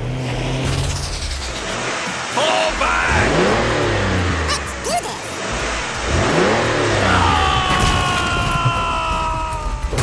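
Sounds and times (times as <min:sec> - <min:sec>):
car engine revving: 0:00.0 - 0:10.0.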